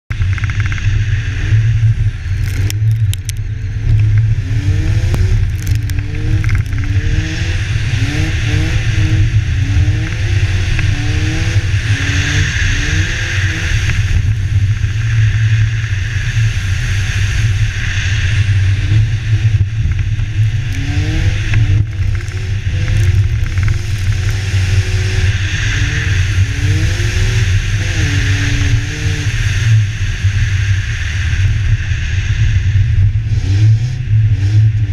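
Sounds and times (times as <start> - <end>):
car engine revving: 0.1 - 34.9
wind rumble: 0.1 - 34.9.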